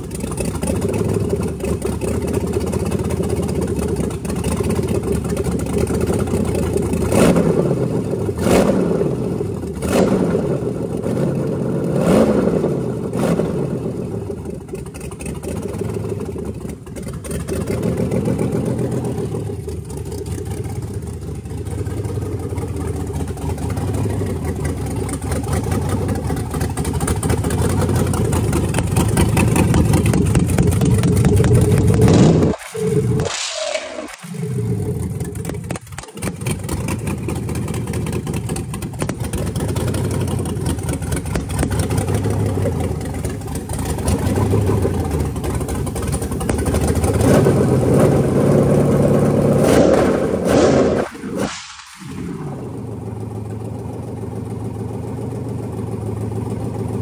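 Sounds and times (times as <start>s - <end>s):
car engine idling: 0.0s - 33.3s, 34.2s - 50.6s, 52.2s - 57.0s
engine revving: 6.0s - 14.4s, 27.0s - 53.8s.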